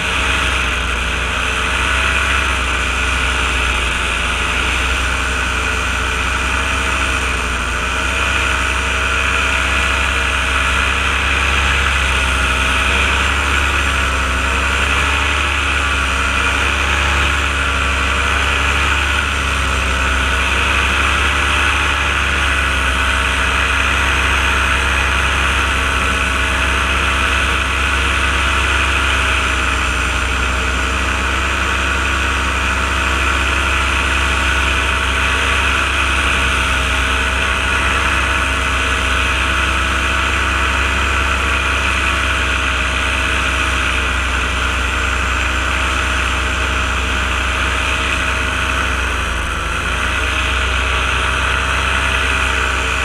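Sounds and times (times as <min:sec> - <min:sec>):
paraglider engine and propeller: 0:00.0 - 0:53.0.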